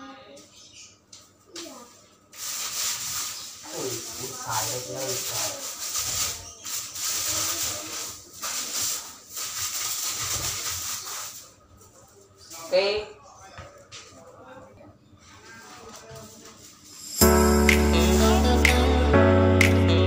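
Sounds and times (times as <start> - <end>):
broom sweeping floor: 1.6 - 12.7, 15.6 - 19.6.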